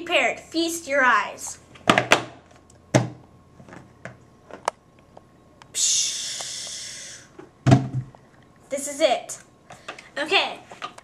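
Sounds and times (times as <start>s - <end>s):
steady hiss: 5.7s - 7.4s.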